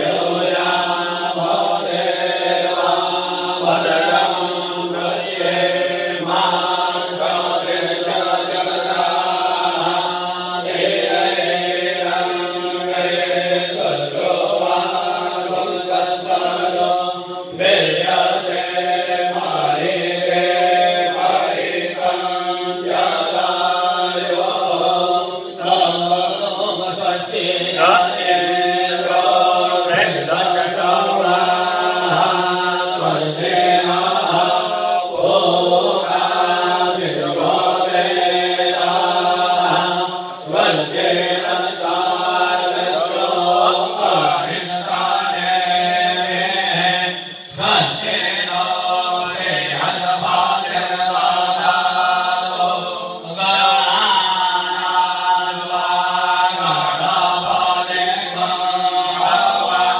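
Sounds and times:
priests chanting: 0:00.0 - 0:59.9.

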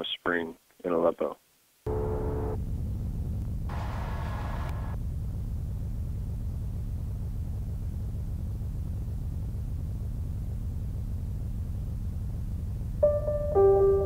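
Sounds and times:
faint hiss: 0:00.0 - 0:02.6, 0:03.7 - 0:05.0
steady low rumble: 0:01.9 - 0:14.0.

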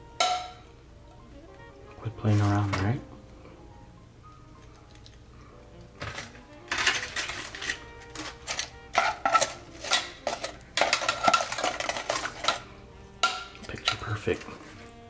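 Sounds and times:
faint background music: 0:00.0 - 0:15.0
metal tongs knocking on saucepan: 0:00.2 - 0:00.6, 0:13.2 - 0:14.2.

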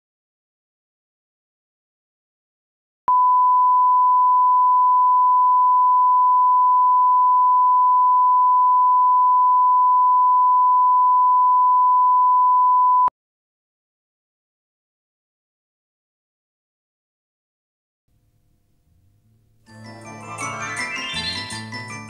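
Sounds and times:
steady sine-wave tone: 0:03.1 - 0:13.1.

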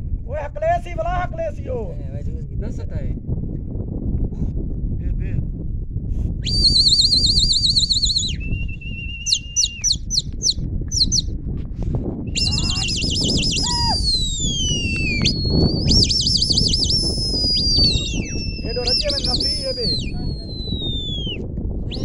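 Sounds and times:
constant low rumble: 0:00.0 - 0:06.8, 0:08.1 - 0:16.3
high overlapping whistles: 0:06.4 - 0:11.3, 0:12.3 - 0:22.0.

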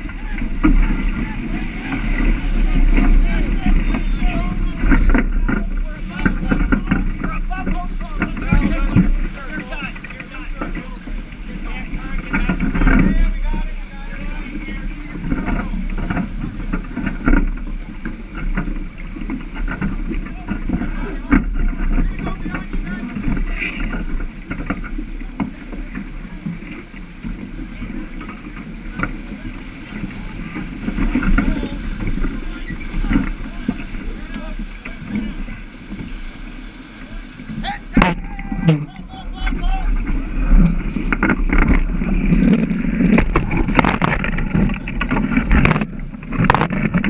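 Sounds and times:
water rushing past hull: 0:00.0 - 0:47.0
wind on microphone: 0:00.0 - 0:47.0
deck gear clicking and knocking: 0:40.0 - 0:47.0.

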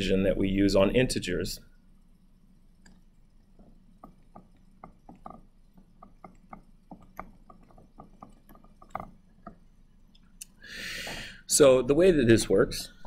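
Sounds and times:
stylus tapping on tablet: 0:03.6 - 0:09.7.

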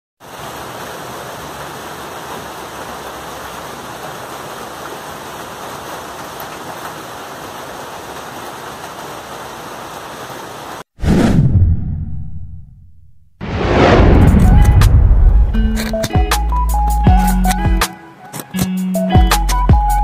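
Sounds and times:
rain falling on foliage: 0:00.2 - 0:10.9.

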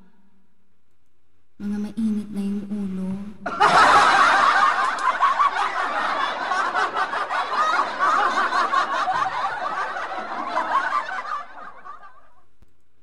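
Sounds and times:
canned laughter: 0:03.5 - 0:12.3.

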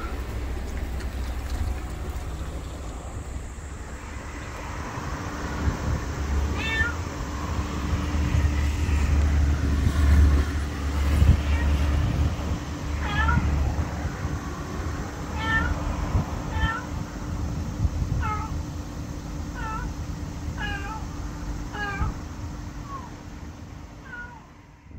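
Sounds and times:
low traffic rumble: 0:00.0 - 0:24.9
cat meowing: 0:06.4 - 0:07.1, 0:11.2 - 0:11.9, 0:13.0 - 0:13.7, 0:15.3 - 0:15.9, 0:16.5 - 0:17.0, 0:18.2 - 0:18.6, 0:19.6 - 0:20.0, 0:20.6 - 0:21.1, 0:21.7 - 0:22.2, 0:24.0 - 0:24.6.

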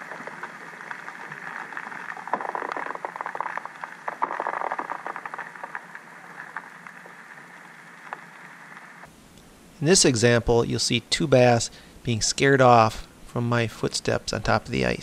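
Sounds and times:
snow pattering on ice underwater: 0:00.0 - 0:09.1.

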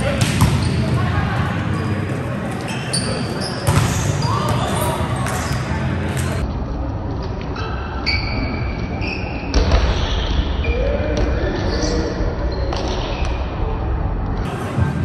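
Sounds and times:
shoes squeaking on court floor: 0:01.7 - 0:06.4.

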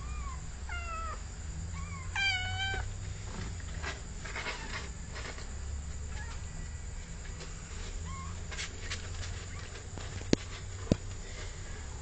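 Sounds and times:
cat meowing: 0:00.0 - 0:01.2, 0:01.8 - 0:02.9
cat chirping: 0:00.0 - 0:02.8.

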